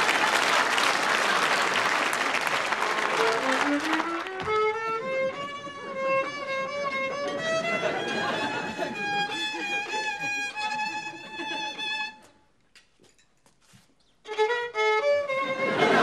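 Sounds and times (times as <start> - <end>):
audience applause and laughter: 0.0 - 12.3, 15.4 - 16.0
solo violin melody: 3.0 - 12.3, 14.2 - 16.0.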